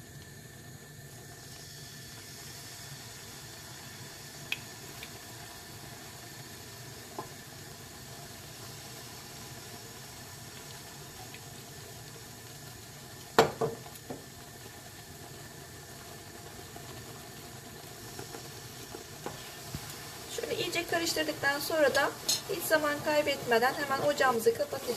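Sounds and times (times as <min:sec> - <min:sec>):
pan sizzling faintly: 0:00.0 - 0:24.9.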